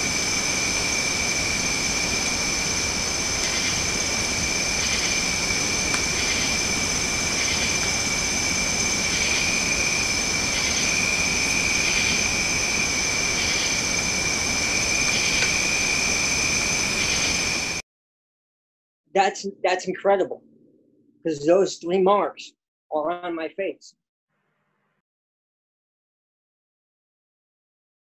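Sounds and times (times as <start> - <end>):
constant hiss: 0.0 - 17.8
faint pulsing insect call: 0.0 - 17.8
insects droning high-pitched: 0.0 - 17.8.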